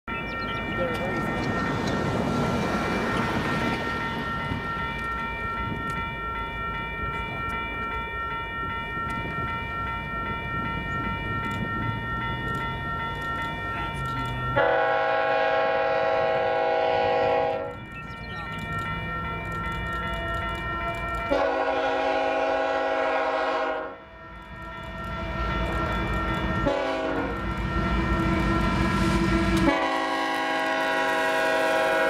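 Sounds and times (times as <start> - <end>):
crossing bell ringing: 0.0 - 32.0
wind noise: 0.4 - 14.5
locomotive horn blast: 14.6 - 17.8, 21.3 - 24.8, 26.5 - 32.0.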